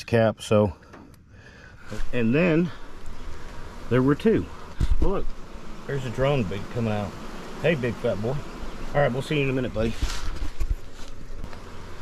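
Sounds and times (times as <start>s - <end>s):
handling rustle: 9.8s - 11.6s.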